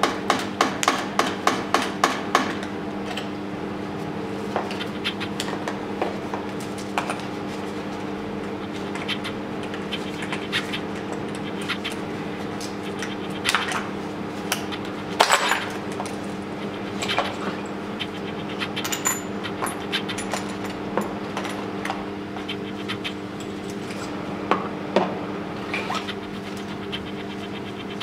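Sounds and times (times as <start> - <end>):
steady hum: 0.0 - 28.0
metal tools clinking on engine: 18.8 - 20.8.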